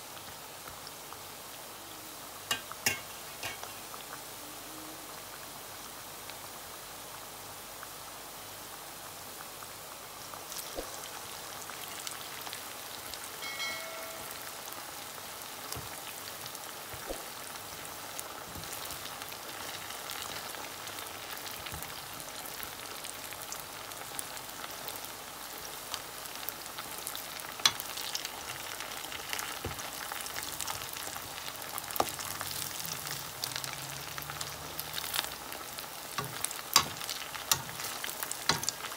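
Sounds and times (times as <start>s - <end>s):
deep-frying sizzle with pops: 0.0s - 38.9s
utensil clicking against pan: 36.2s - 38.9s.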